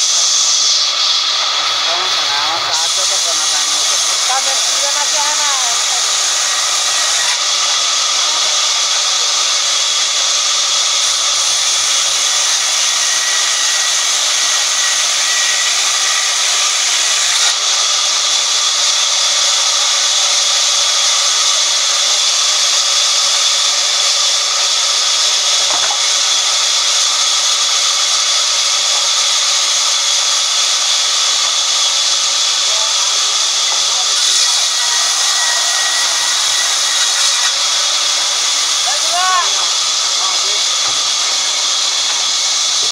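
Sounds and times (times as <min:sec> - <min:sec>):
band saw ripping wood: 0:33.8 - 0:37.8.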